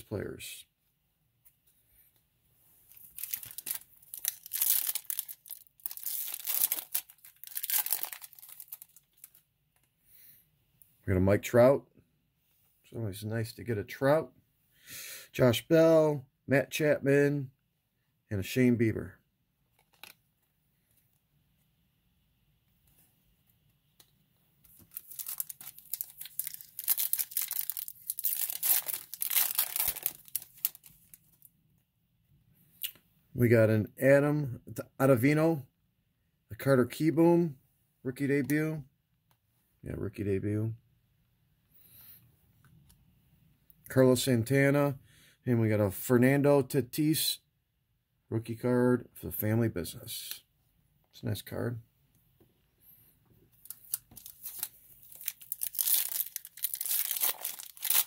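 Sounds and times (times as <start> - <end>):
foil wrapper crinkling and tearing: 2.9 - 9.4, 24.7 - 31.4, 53.6 - 58.0.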